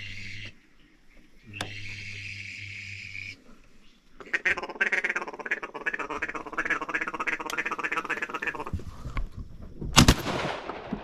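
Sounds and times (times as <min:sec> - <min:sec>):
ducks quacking: 0:04.2 - 0:08.8.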